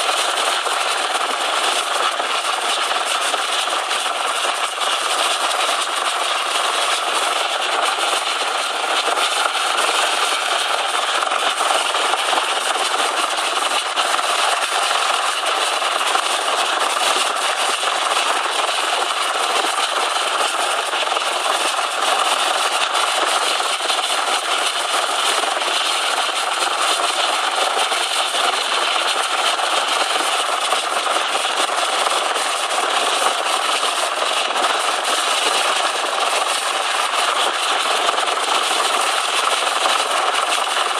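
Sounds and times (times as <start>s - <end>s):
helicopter hovering overhead: 0.0s - 40.9s.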